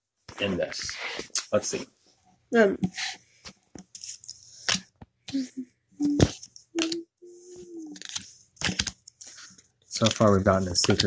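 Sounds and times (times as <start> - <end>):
person humming: 5.3 - 8.0
cards flicking and sliding: 6.0 - 11.0.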